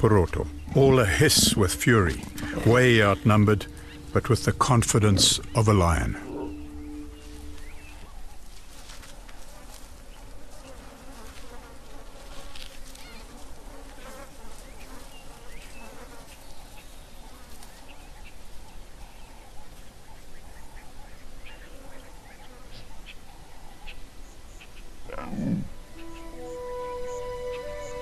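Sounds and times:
insects buzzing: 0:00.0 - 0:18.3, 0:24.1 - 0:28.0.

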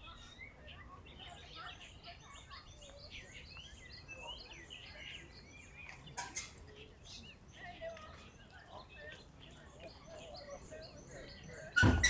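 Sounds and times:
birds chirping and whistling: 0:00.1 - 0:07.6.

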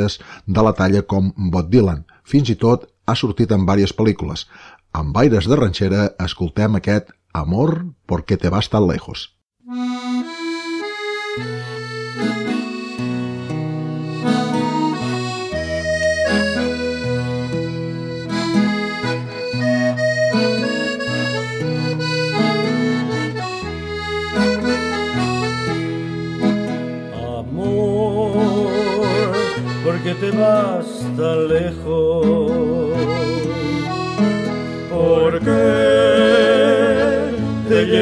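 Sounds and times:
accordion playing: 0:09.6 - 0:38.0
held bass notes: 0:09.7 - 0:38.0.

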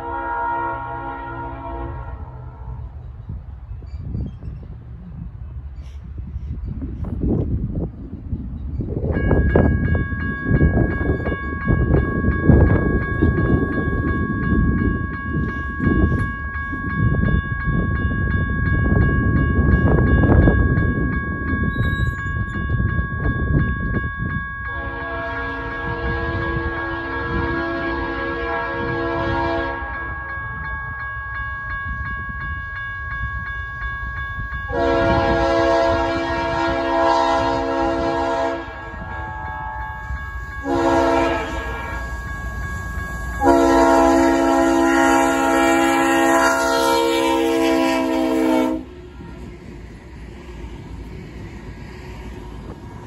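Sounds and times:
locomotive air horn: 0:00.0 - 0:02.8, 0:24.7 - 0:30.0, 0:34.7 - 0:40.0, 0:40.6 - 0:42.1, 0:43.4 - 0:49.0
locomotive rumbling past: 0:00.0 - 0:53.0
crossing bell ringing: 0:08.4 - 0:53.0.

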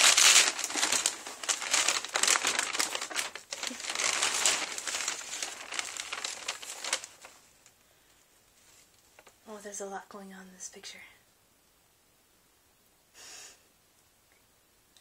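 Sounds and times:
gift wrapping crinkling: 0:00.0 - 0:07.8.

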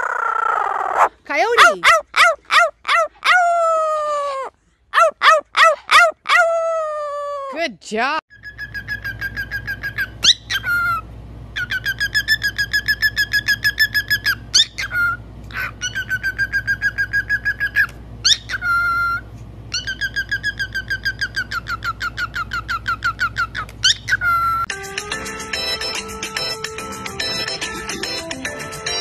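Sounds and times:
cockatiel whistling and chirping: 0:08.3 - 0:11.0, 0:11.6 - 0:24.7.

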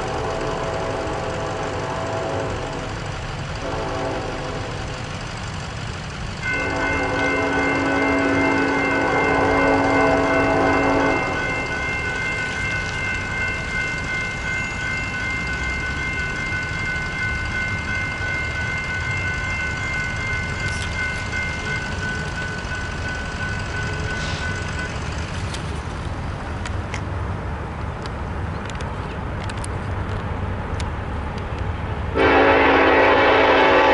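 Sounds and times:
locomotive horn chord: 0:00.0 - 0:05.0, 0:06.4 - 0:11.9, 0:32.1 - 0:33.9
crossing warning bells ringing: 0:00.0 - 0:27.0, 0:31.8 - 0:33.9.

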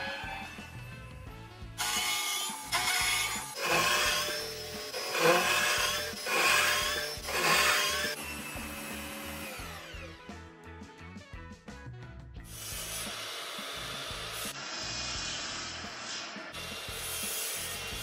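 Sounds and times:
background music: 0:00.0 - 0:18.0
tool working wood: 0:01.8 - 0:10.0, 0:12.6 - 0:18.0.

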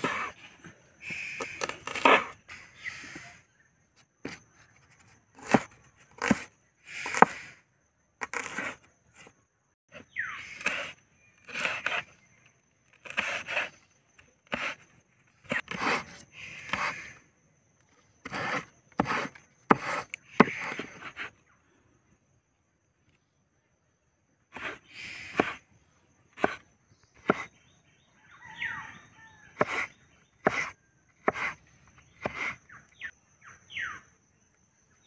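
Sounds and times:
blade scraping on wood: 0:01.1 - 0:03.3, 0:08.2 - 0:09.3, 0:10.4 - 0:12.2, 0:12.9 - 0:17.2, 0:18.2 - 0:21.3, 0:29.6 - 0:32.7
knife chopping on wooden board: 0:05.4 - 0:06.5, 0:08.2 - 0:08.8, 0:18.2 - 0:21.3, 0:24.6 - 0:25.6, 0:26.4 - 0:26.6, 0:27.2 - 0:27.5, 0:29.6 - 0:31.6, 0:32.2 - 0:32.6.

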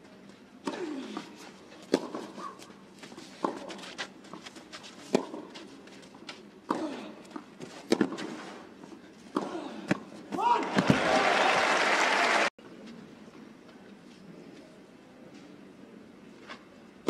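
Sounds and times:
racquets striking tennis ball: 0:00.6 - 0:08.6.

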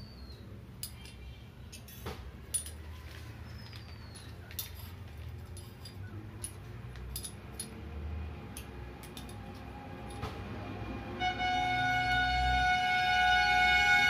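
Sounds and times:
metal parts clinking: 0:00.8 - 0:07.8, 0:08.5 - 0:10.2.

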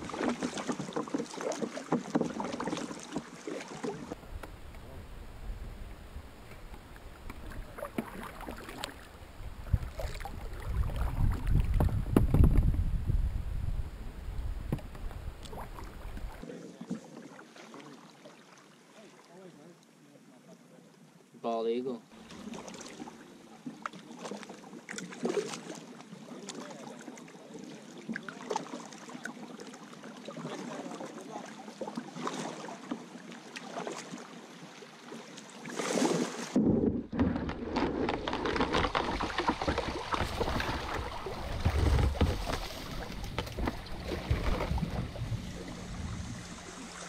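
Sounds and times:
paddle strokes: 0:00.0 - 0:12.8, 0:14.4 - 0:19.3, 0:22.2 - 0:47.0
water lapping against boat hull: 0:00.0 - 0:13.2, 0:14.3 - 0:19.3, 0:22.2 - 0:47.0
rushing water and wind: 0:00.0 - 0:16.5, 0:28.2 - 0:47.0.

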